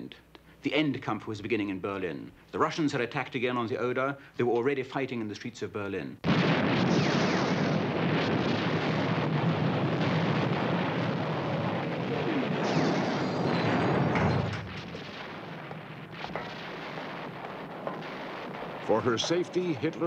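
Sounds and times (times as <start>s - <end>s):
explosions: 6.2s - 20.0s
gunfire: 6.2s - 20.0s.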